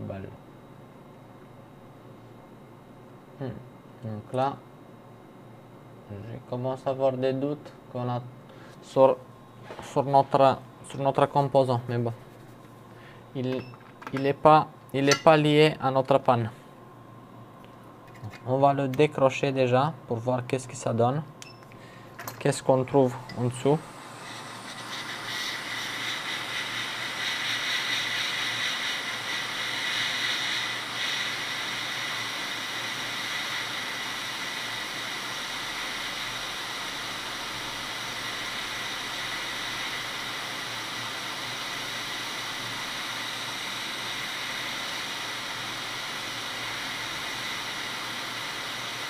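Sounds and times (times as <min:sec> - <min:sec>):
faint steady whine: 0:00.0 - 0:49.0
hot air station hissing: 0:12.0 - 0:13.5, 0:21.8 - 0:49.0.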